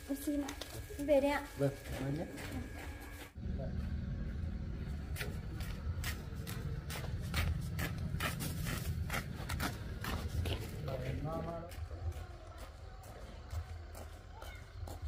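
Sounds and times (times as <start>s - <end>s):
steady low rumble: 3.3s - 14.3s
sandals scuffing on concrete: 5.2s - 11.0s.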